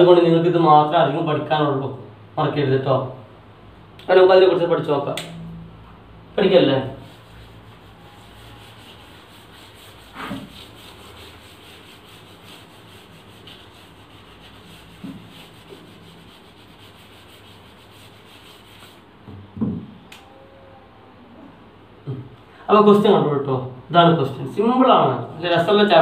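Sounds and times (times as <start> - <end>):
cloth rubbing whiteboard: 6.4 - 19.2.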